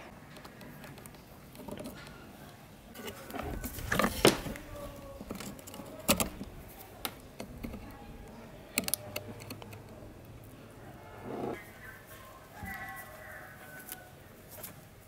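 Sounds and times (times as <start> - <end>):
small clicks and taps on metal: 4.0 - 10.0.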